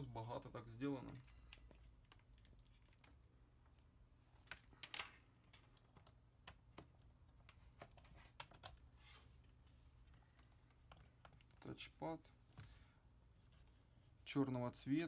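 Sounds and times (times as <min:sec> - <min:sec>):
hands handling a laptop: 0:04.3 - 0:11.6.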